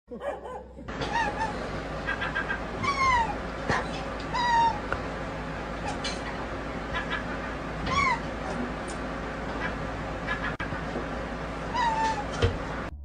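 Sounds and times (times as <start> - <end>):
cat chirping: 1.0 - 3.4, 4.3 - 4.8, 11.7 - 12.4.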